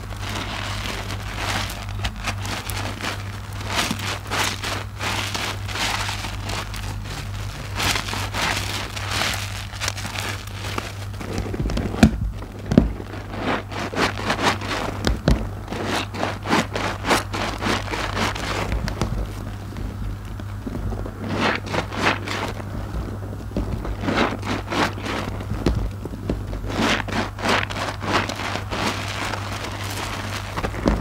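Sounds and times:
suds popping and fizzing: 0:00.0 - 0:31.0.

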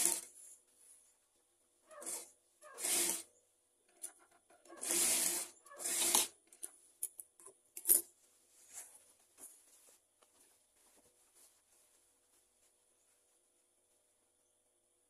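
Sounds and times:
fabric rustling and rubbing: 0:08.2 - 0:13.6.

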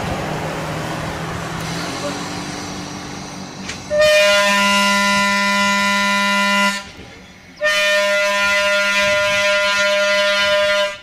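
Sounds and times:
railcar air horn blasts: 0:03.9 - 0:06.9, 0:07.6 - 0:11.0.

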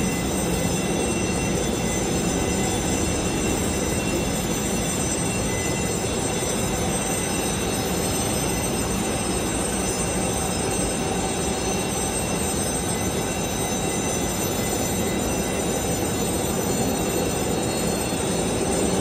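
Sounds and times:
high whining tones: 0:00.0 - 0:07.8
jet turbines roaring: 0:00.0 - 0:07.8.

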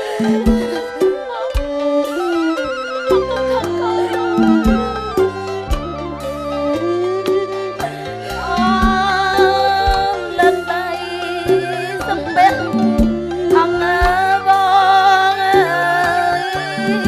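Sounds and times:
woman singing ornamented melody: 0:00.0 - 0:06.2, 0:07.8 - 0:17.0
traditional ensemble music: 0:00.0 - 0:17.0.

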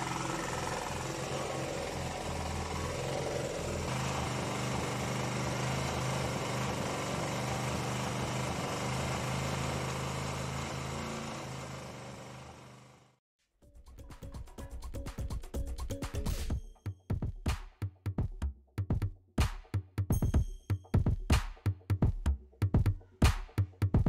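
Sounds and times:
generator engine running: 0:00.0 - 0:13.2.

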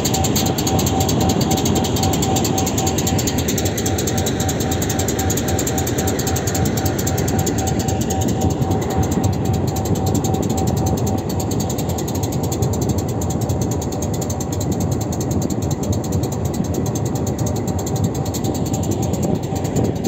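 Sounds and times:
fast mechanical rattle: 0:00.0 - 0:20.0.

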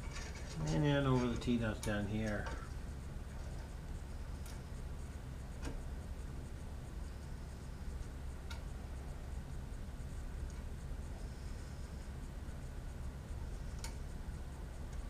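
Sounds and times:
low hum: 0:00.0 - 0:15.0
faint metal ticks: 0:07.9 - 0:15.0.

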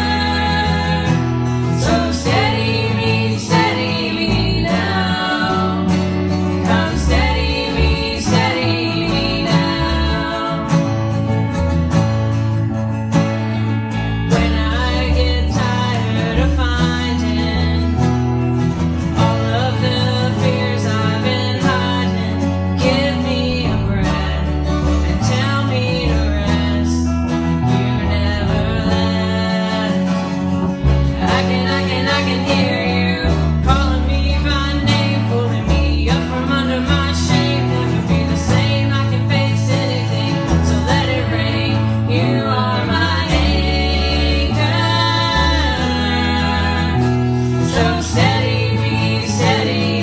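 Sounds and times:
woman singing lead vocals: 0:00.0 - 0:11.6, 0:13.9 - 0:18.4, 0:19.1 - 0:50.0
electric bass: 0:00.0 - 0:50.0
strummed acoustic guitars: 0:00.0 - 0:50.0.

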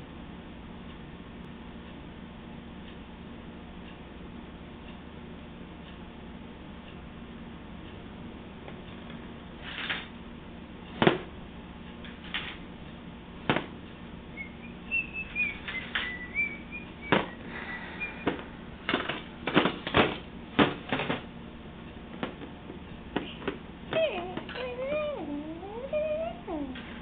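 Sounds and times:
low steady hum: 0:00.0 - 0:27.0
faint high chirp-like whistle: 0:14.3 - 0:18.4.

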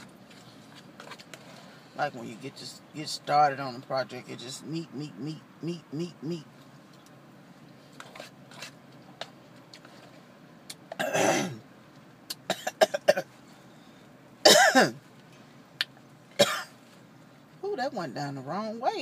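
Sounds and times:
woman coughing: 0:11.0 - 0:11.6, 0:12.5 - 0:13.3, 0:14.4 - 0:15.0, 0:16.4 - 0:16.7.

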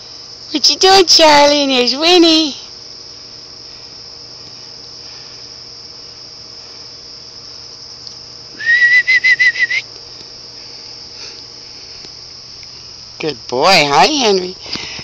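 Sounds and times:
crickets chirping: 0:00.0 - 0:15.0
pulsing whistle-like call: 0:08.5 - 0:09.9.

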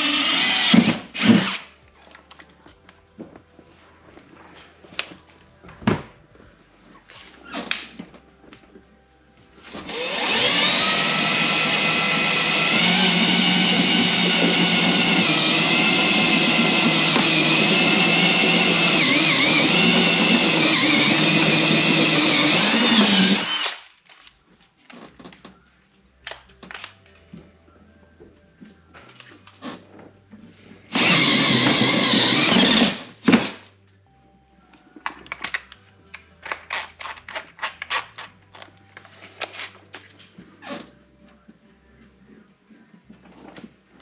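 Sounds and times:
cordless drill motor whining: 0:00.0 - 0:01.6, 0:09.8 - 0:23.8, 0:30.9 - 0:33.5.

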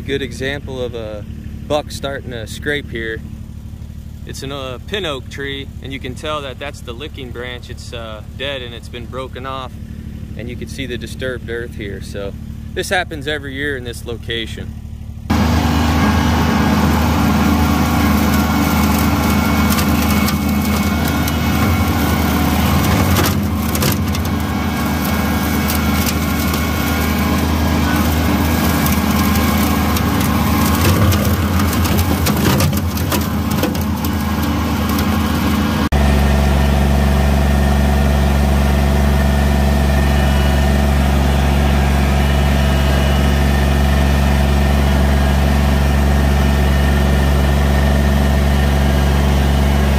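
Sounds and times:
tractor diesel engine running: 0:00.0 - 0:49.9
knocks and rattles: 0:18.3 - 0:35.6.

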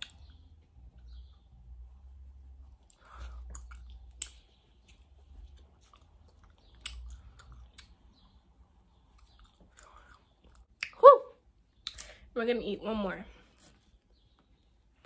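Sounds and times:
wet mouth clicks and smacks: 0:00.0 - 0:00.3, 0:02.9 - 0:08.2, 0:09.1 - 0:11.0, 0:11.8 - 0:12.2
person chewing gummy candies: 0:02.9 - 0:08.4, 0:09.2 - 0:11.0.

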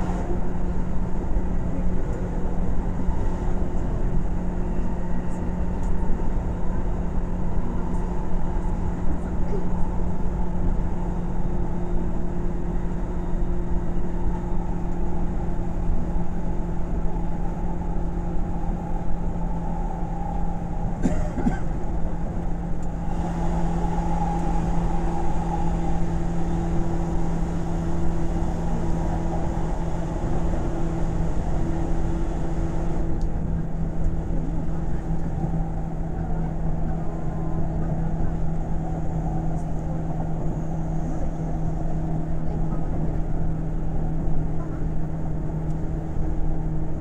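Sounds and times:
train wheels rumbling on rail: 0:00.0 - 0:47.0
drive equipment hum: 0:13.6 - 0:46.3.

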